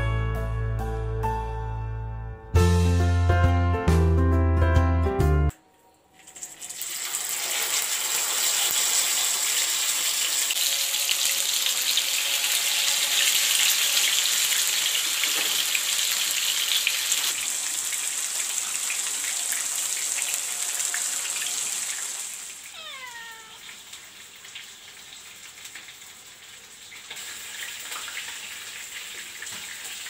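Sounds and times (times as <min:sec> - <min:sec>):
fish sizzling in hot oil: 0:06.2 - 0:30.0
fine crackling of oil: 0:23.6 - 0:30.0.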